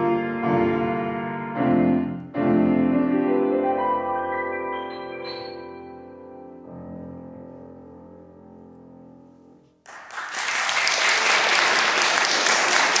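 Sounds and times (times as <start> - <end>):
piano low chord ringing: 0.0 - 9.6
audience applause: 9.9 - 13.0.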